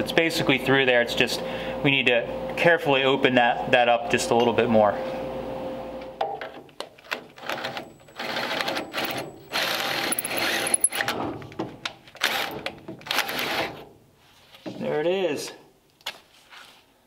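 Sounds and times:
power drill reaming steel: 0:07.4 - 0:11.2.

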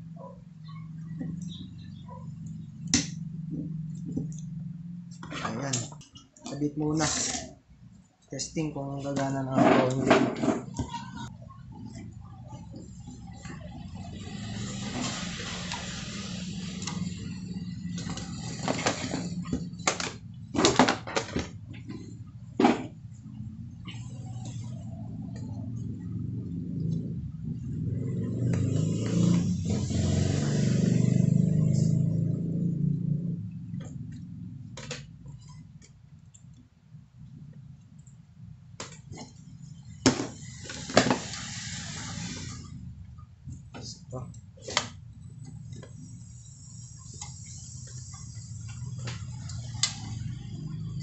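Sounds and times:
steady low hum: 0:00.0 - 0:51.0
rustling hiss: 0:40.4 - 0:42.8.

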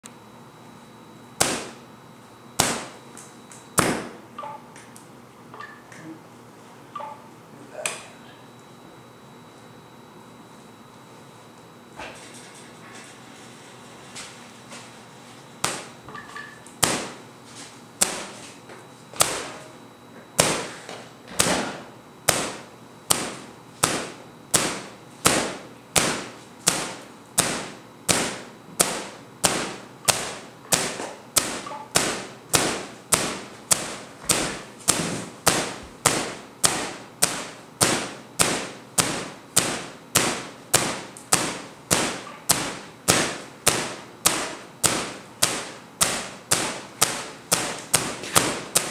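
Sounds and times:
tesla coil sharp snaps: 0:01.4 - 0:01.8, 0:02.6 - 0:05.1, 0:22.3 - 0:48.9.

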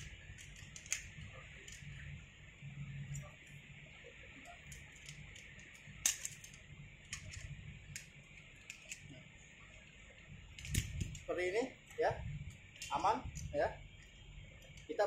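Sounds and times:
metallic clicks of climbing hardware: 0:00.3 - 0:01.9, 0:04.6 - 0:09.2.

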